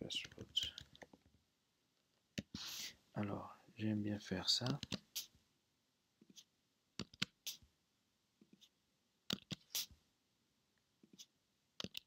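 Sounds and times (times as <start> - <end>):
computer keyboard keystrokes: 11.8 - 12.0.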